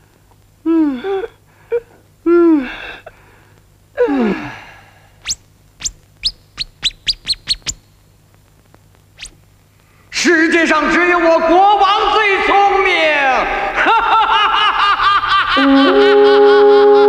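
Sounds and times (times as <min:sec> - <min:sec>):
high falling chirps: 0:05.2 - 0:07.9, 0:09.2 - 0:09.4.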